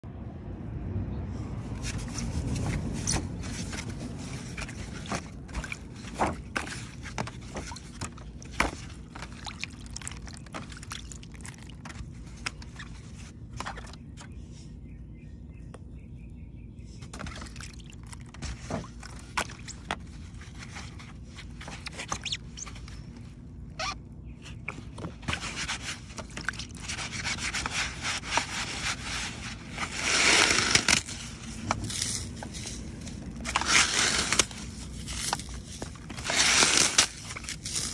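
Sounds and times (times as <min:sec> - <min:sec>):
fingers crunching wet foam: 0:01.8 - 0:14.4, 0:25.4 - 0:37.9.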